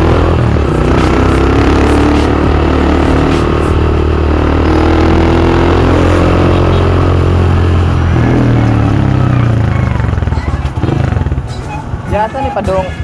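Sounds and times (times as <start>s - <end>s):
motorcycle engine running: 0.0s - 13.0s.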